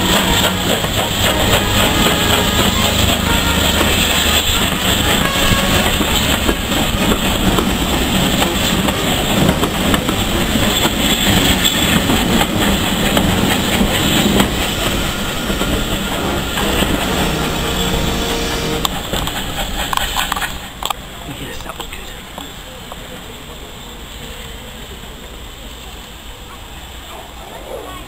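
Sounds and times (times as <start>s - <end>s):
train wheels clattering over rail joints: 0.0s - 18.2s, 18.9s - 21.0s.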